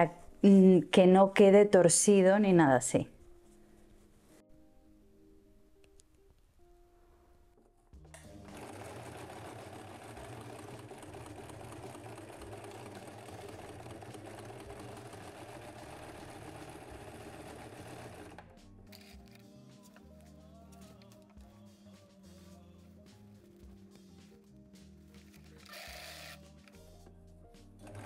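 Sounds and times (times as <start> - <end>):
electric sewing machine running: 8.2 - 18.4, 25.6 - 26.4.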